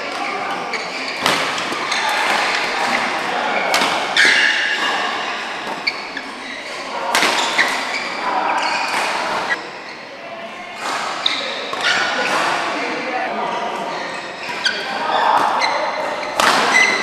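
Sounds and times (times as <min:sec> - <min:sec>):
court noise: 0:00.0 - 0:17.0
players' voices: 0:00.0 - 0:17.0
racket hitting shuttlecock: 0:01.2 - 0:06.0, 0:07.0 - 0:08.0, 0:14.5 - 0:17.0.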